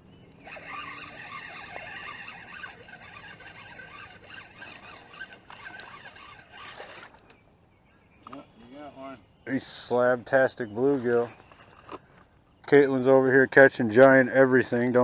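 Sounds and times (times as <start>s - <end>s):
fishing reel gears whirring: 0.3s - 7.2s.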